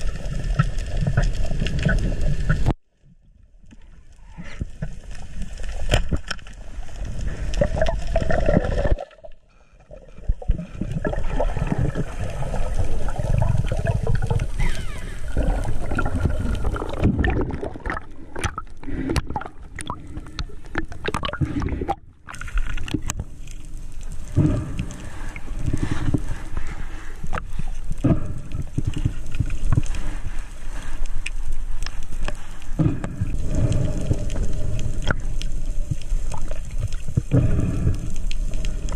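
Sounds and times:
underwater water gurgling: 0.0 - 38.9.

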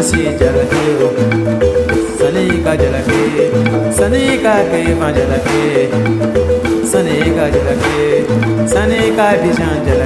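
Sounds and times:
repeating bass line: 0.0 - 10.0.

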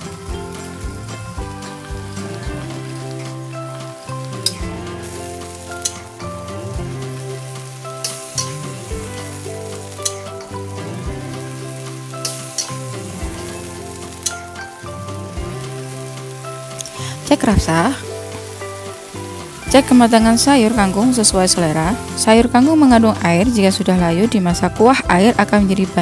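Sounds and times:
background music: 0.0 - 26.0
light sizzle: 0.0 - 26.0
metal spatula scraping a wok: 4.0 - 14.8.

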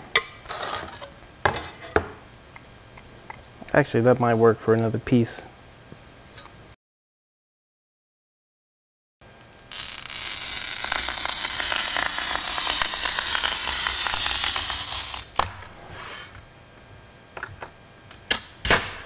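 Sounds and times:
glass cutter scoring glass: 9.7 - 15.4.

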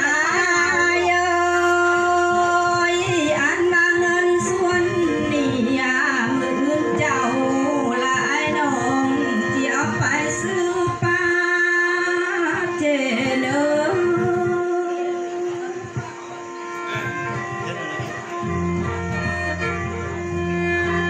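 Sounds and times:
instrumental accompaniment: 0.0 - 21.0
held drone note: 13.9 - 21.0.

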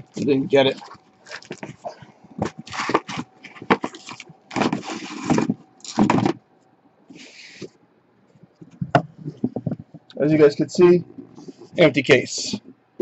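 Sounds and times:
cardboard scraping and rustling: 1.3 - 6.4
boxes sliding against cardboard: 1.8 - 5.6, 7.1 - 7.7.

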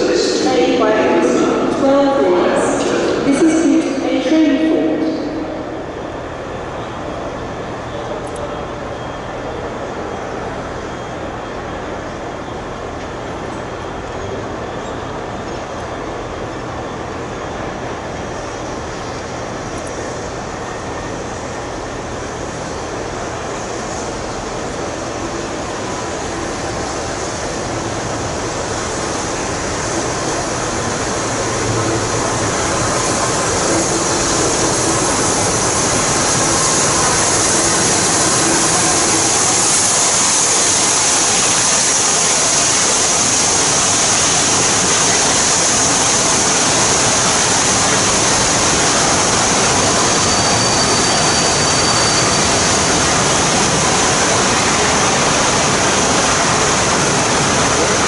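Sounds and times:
steam train passing on rails: 0.0 - 58.0
high squeal: 48.0 - 54.4.

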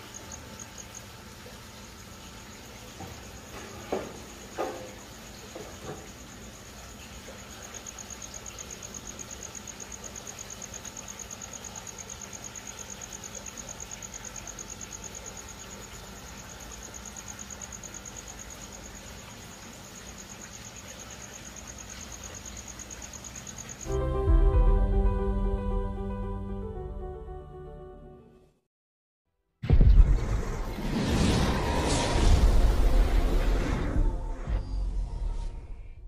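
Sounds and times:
cricket chirping: 0.0 - 25.0.

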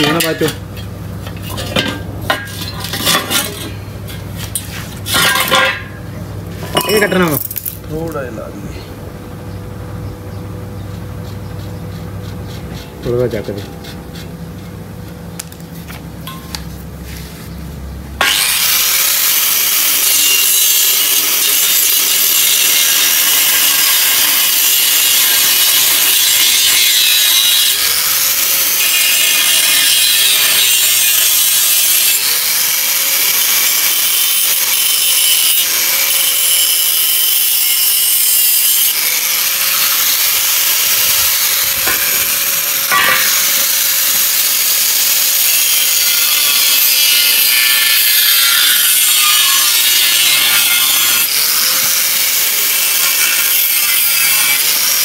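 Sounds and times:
angle grinder cutting metal: 0.0 - 6.0, 18.2 - 55.0.

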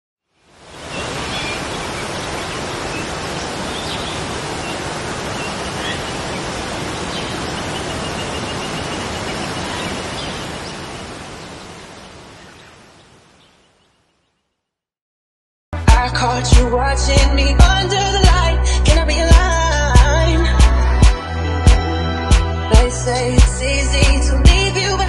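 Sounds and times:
waterfall roaring: 0.5 - 12.9.

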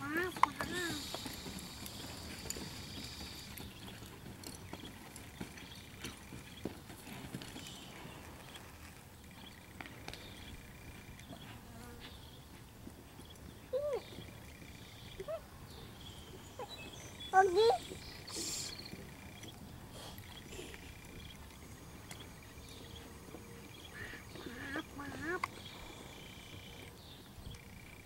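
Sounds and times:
insects buzzing: 0.0 - 6.7, 16.0 - 28.0.

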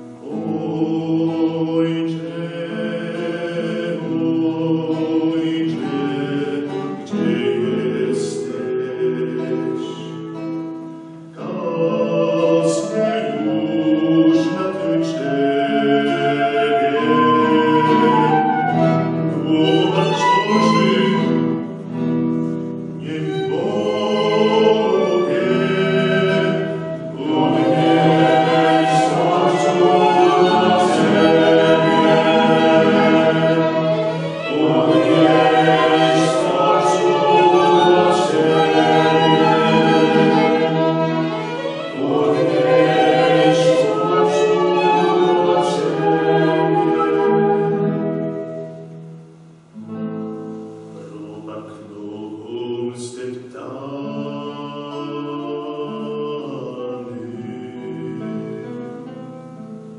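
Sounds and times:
mixed choir singing a hymn: 0.0 - 10.2, 11.4 - 21.9, 23.0 - 48.4, 51.1 - 58.7
violin: 0.0 - 51.8
flute: 11.4 - 22.4, 23.0 - 49.3.

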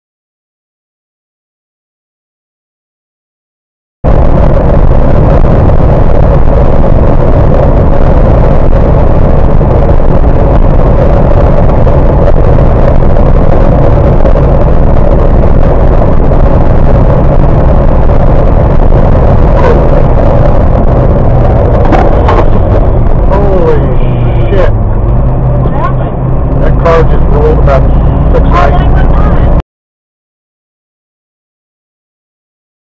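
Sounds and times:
vehicle engine and road drone: 4.0 - 29.6.

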